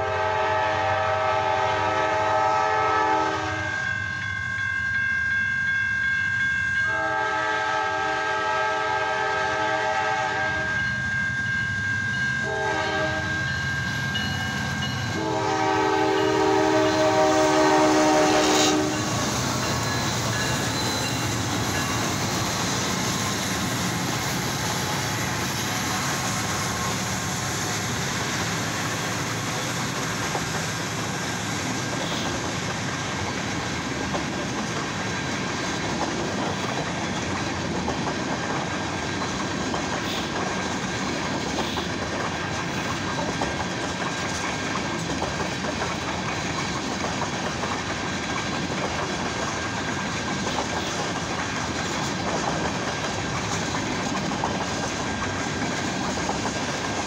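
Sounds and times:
locomotive air horn: 0.0s - 5.0s, 6.1s - 10.8s, 12.4s - 13.5s, 15.1s - 19.4s
train cars rumbling past: 0.0s - 57.0s
train wheel clatter: 12.4s - 57.0s.

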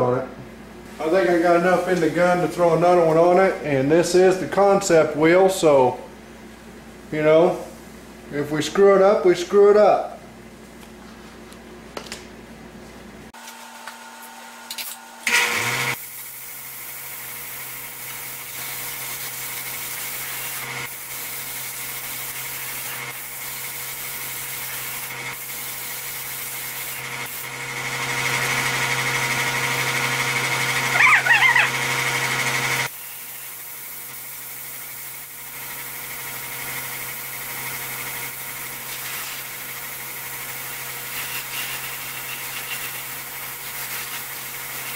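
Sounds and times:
small motor humming and hissing: 13.4s - 44.9s.

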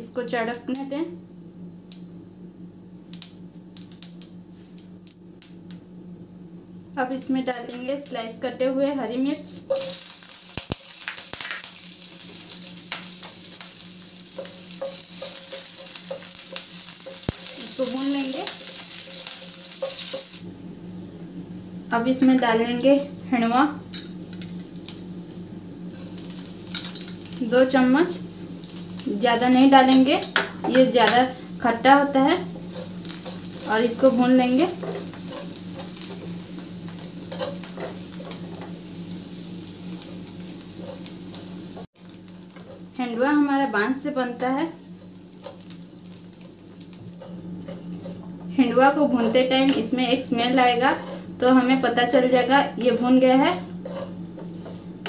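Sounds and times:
chillies sizzling in hot oil: 1.9s - 5.9s, 6.9s - 55.0s
mustard seeds popping: 9.8s - 20.4s
wooden spoon stirring and scraping: 14.3s - 20.4s, 32.4s - 38.8s, 40.0s - 43.0s, 46.4s - 55.0s
wooden spatula stirring: 47.0s - 55.0s.

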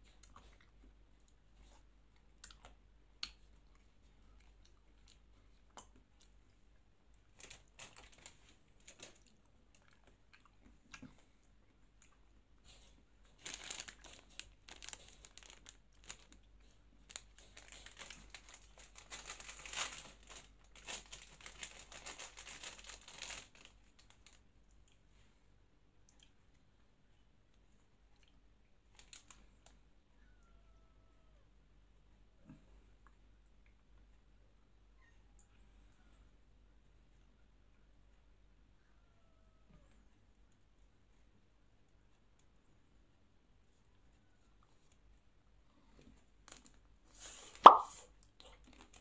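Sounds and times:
plastic wrapper crinkling and tearing: 7.3s - 9.3s, 13.3s - 24.4s, 29.0s - 29.4s, 46.4s - 46.8s, 47.7s - 49.0s
mouth clicks: 47.6s - 48.0s.

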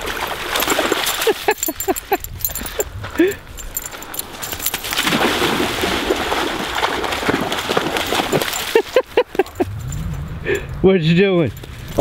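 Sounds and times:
dog running through water splashing: 0.0s - 2.9s, 3.6s - 9.7s.

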